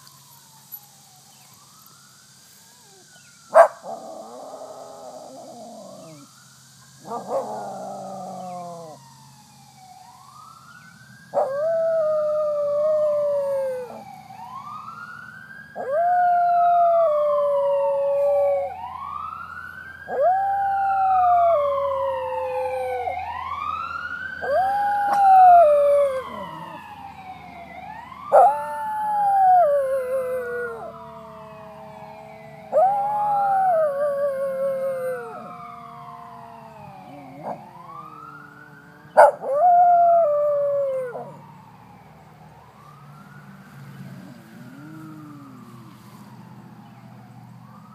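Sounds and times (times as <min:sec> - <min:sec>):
fire truck siren wailing: 0:00.0 - 0:47.9
dog howling: 0:03.6 - 0:06.3, 0:07.0 - 0:09.0, 0:15.8 - 0:18.8, 0:20.1 - 0:23.3, 0:24.4 - 0:27.0, 0:28.3 - 0:35.6, 0:36.5 - 0:41.5, 0:44.2 - 0:45.9.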